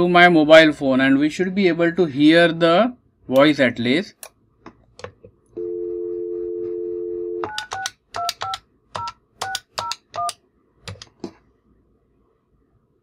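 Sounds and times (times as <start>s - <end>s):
phone dial tone: 5.6s - 10.3s
phone keypad tones: 5.6s - 10.4s
keypad button clicks: 7.4s - 11.1s.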